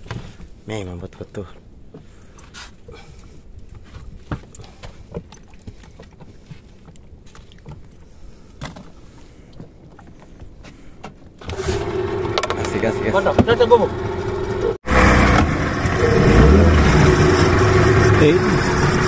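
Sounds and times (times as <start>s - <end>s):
outboard motor running: 11.5s - 19.0s.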